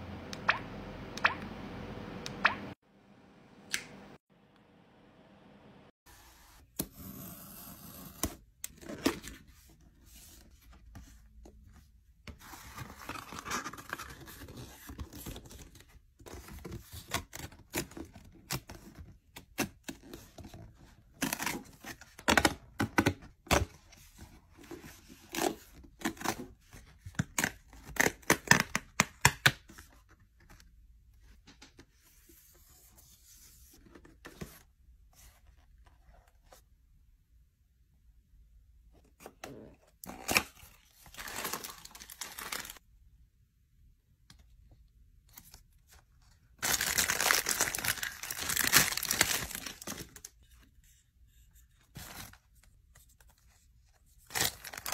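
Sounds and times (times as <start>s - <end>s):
cardboard tearing and rustling: 40.2s - 42.8s, 46.6s - 50.2s, 54.3s - 54.9s.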